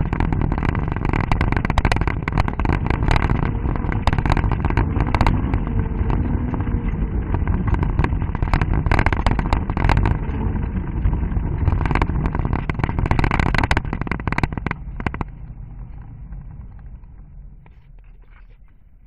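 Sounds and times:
stones clattering under tyres: 0.0s - 10.5s, 11.5s - 15.5s
car engine running: 0.0s - 19.0s.

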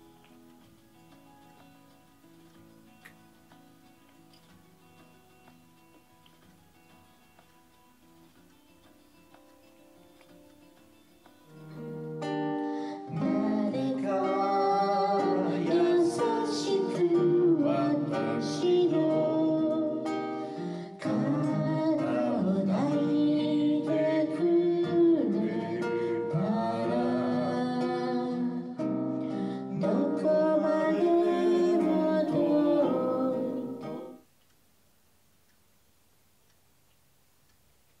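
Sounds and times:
plucked acoustic guitar: 0.0s - 34.2s
person singing: 12.6s - 34.2s.

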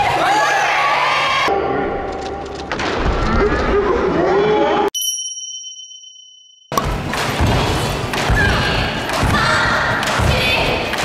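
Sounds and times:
bright two-tone chime: 5.0s - 6.8s.

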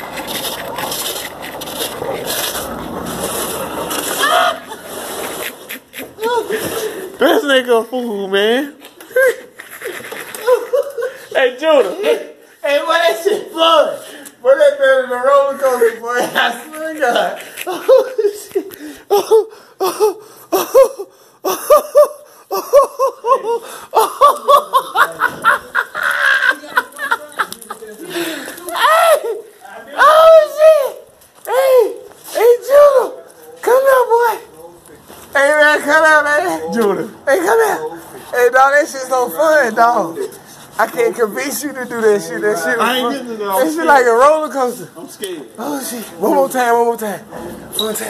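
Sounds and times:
person laughing hard: 4.1s - 7.2s, 9.1s - 11.4s, 17.4s - 29.5s
person crying out: 4.2s - 4.8s, 19.1s - 24.2s, 28.7s - 33.0s.

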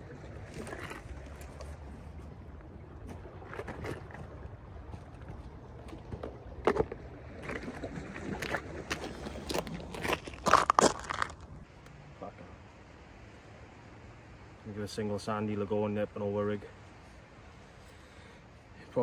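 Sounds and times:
low wind rumble: 0.0s - 11.8s
fishing tackle rustles and knocks: 0.3s - 11.6s.

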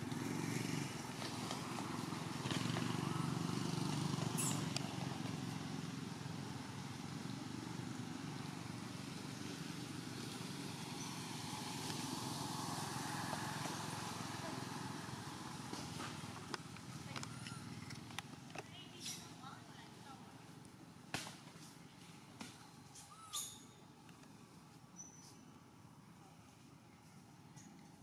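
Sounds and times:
outdoor ambience: 0.0s - 28.0s.

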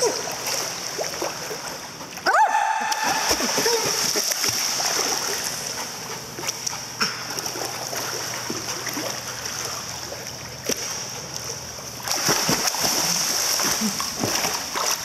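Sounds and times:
dog swimming and splashing: 0.0s - 2.2s, 2.8s - 15.0s
water slaps: 2.8s - 9.9s, 10.6s - 15.0s.

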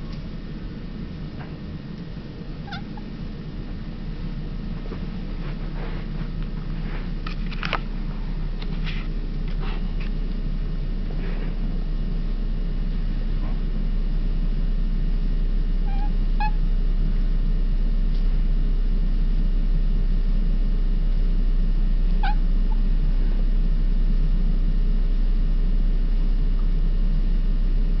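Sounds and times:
steady low hum: 0.0s - 28.0s
cat chirping: 2.6s - 3.2s, 15.8s - 16.6s, 22.2s - 22.8s.

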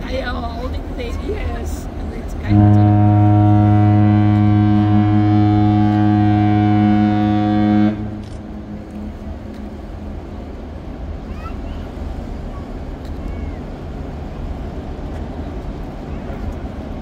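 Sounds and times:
deep ship's horn blast: 2.4s - 10.2s.

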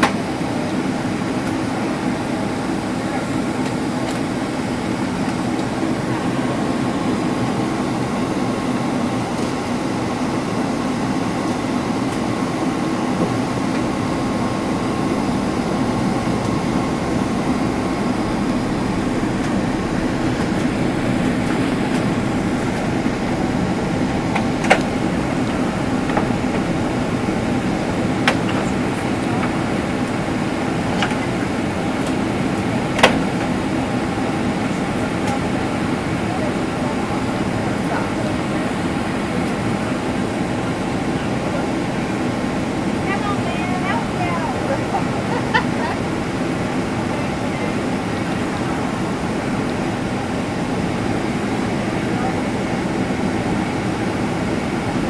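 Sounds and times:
airliner cabin engine drone: 0.0s - 55.0s
faint steady whine: 0.0s - 55.0s.

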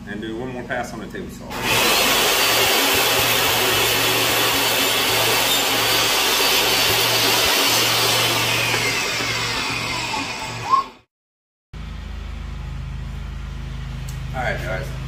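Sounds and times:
table saw cutting wood: 1.5s - 11.1s.

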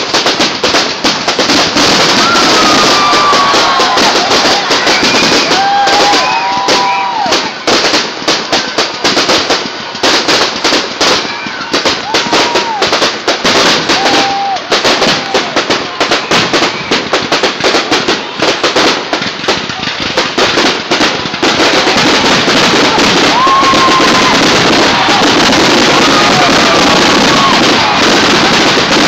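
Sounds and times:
fireworks cracking and banging: 0.0s - 29.0s
firework whistles: 1.4s - 8.0s, 11.0s - 18.0s, 21.0s - 29.0s.

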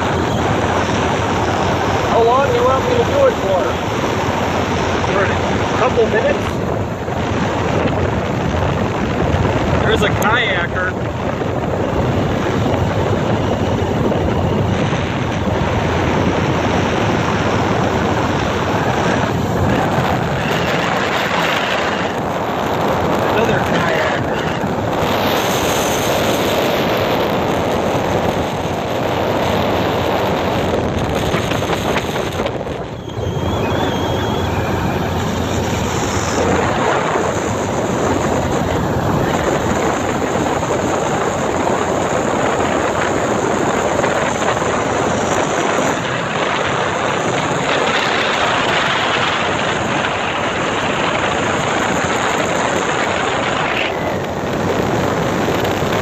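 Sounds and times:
rushing water: 0.0s - 13.4s, 14.4s - 56.0s
motorboat engine running: 0.0s - 56.0s
wind on microphone: 0.0s - 56.0s.

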